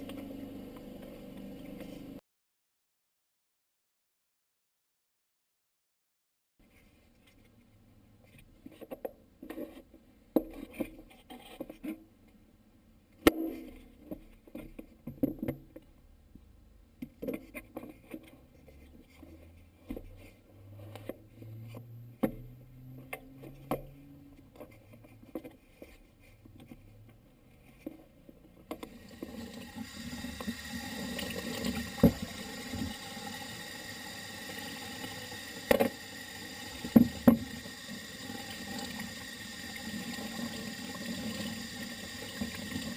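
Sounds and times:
tap water running into sink: 0:28.7 - 0:42.9.

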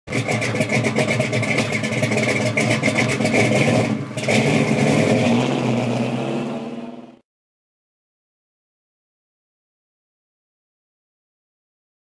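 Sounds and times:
car engine loping: 0:00.1 - 0:07.2.

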